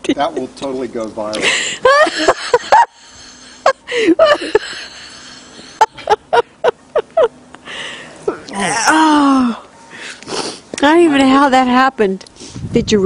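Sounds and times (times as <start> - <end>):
person laughing: 1.4 - 7.7.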